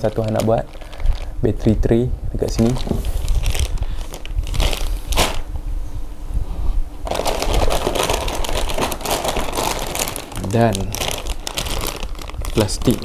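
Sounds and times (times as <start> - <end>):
plastic bags crinkling and rustling: 0.0 - 1.8, 2.4 - 5.5, 7.0 - 13.0.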